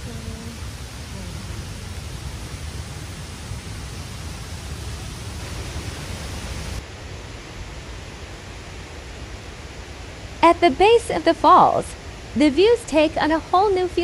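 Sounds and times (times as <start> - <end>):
waterfall rushing: 0.0 - 6.8.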